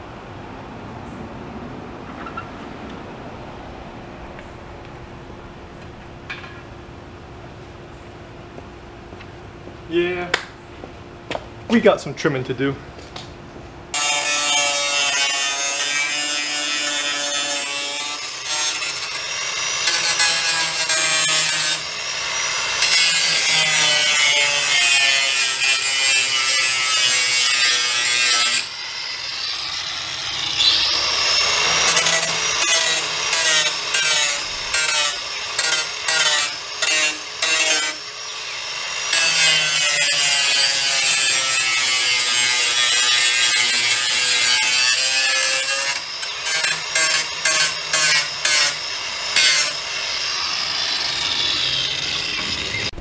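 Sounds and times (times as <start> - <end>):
angle grinder grinding metal: 13.9 - 53.0.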